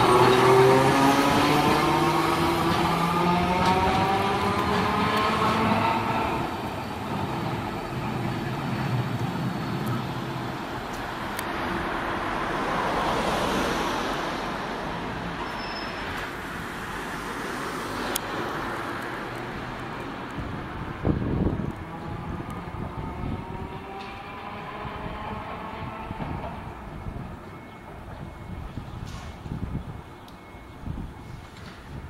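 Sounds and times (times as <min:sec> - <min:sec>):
street traffic noise: 0:00.0 - 0:32.0
tram running on street track: 0:00.0 - 0:32.0.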